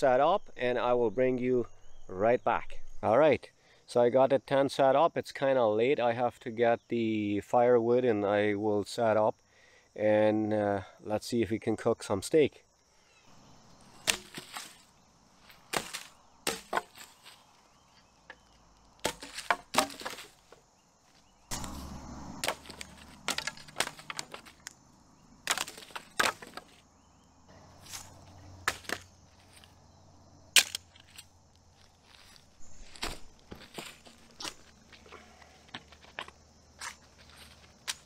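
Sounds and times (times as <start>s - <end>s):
firewood dropped onto a pile: 13.9s - 24.8s, 25.4s - 26.8s, 27.8s - 29.8s, 30.6s - 38.0s.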